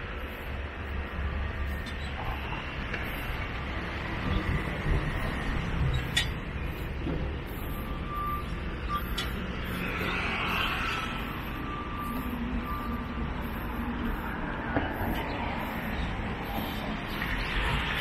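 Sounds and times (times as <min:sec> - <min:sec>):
heavy engine rumbling: 0:00.0 - 0:18.0
electronic warning beeps: 0:04.2 - 0:16.9.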